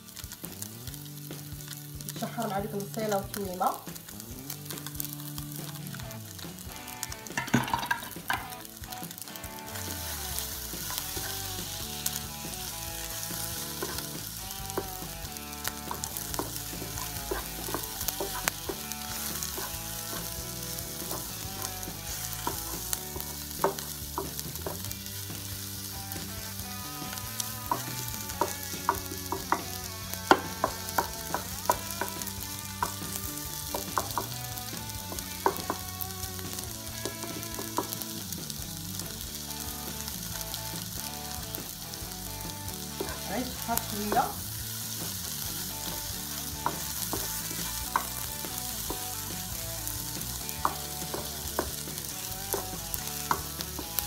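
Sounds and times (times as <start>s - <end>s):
food sizzling in frying pan: 0.0s - 54.0s
wooden spatula scraping pan: 7.4s - 25.1s.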